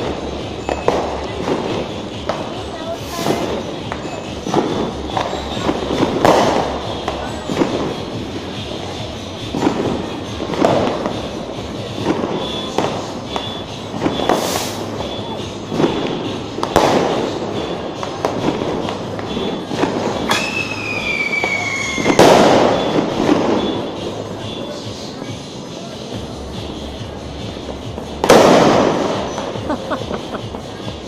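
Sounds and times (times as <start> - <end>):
firecrackers banging: 0.0 - 31.0
whistle bomb falling whistle: 12.4 - 15.4, 19.3 - 23.9.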